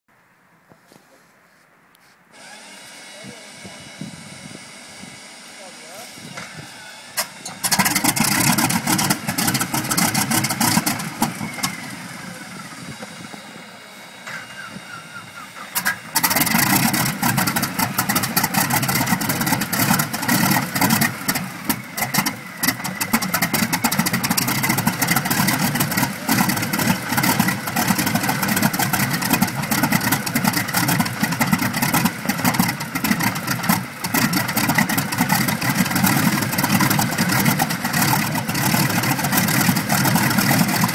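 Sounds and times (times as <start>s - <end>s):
radial engine starting and running: 2.3s - 40.9s.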